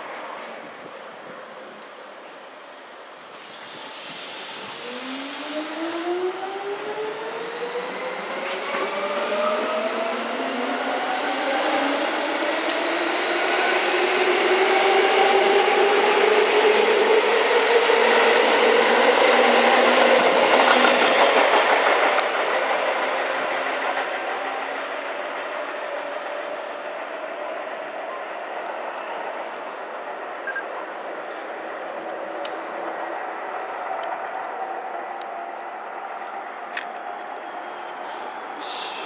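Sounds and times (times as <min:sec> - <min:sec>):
train wheels on rail: 0:00.0 - 0:39.0.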